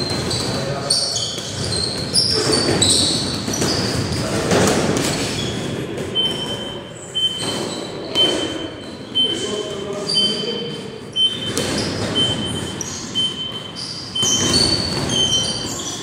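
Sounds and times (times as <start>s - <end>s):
sneakers squeaking on gym floor: 0.0s - 16.0s.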